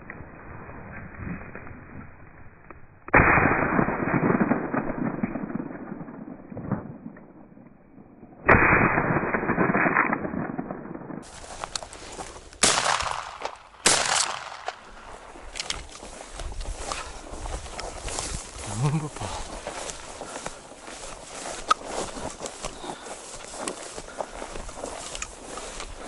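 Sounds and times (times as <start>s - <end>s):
shotgun shot: 3.1s - 7.0s, 8.5s - 11.2s, 12.6s - 14.9s
slowed shotgun shots with echoes: 3.1s - 11.3s, 12.6s - 15.2s.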